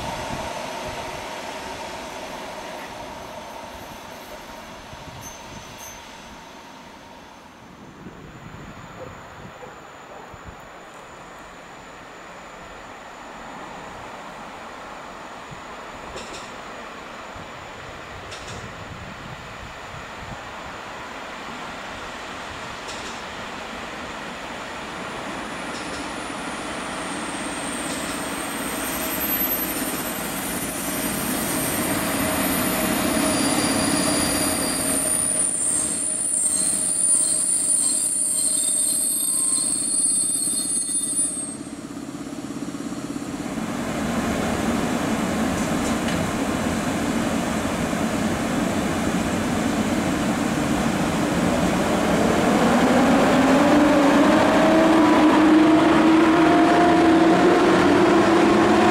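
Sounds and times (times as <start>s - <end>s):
rising whine: 0.0s - 16.1s, 51.0s - 58.9s
train rolling slowly: 0.0s - 58.9s
high-pitched brake squeal: 3.7s - 6.8s, 27.1s - 41.8s.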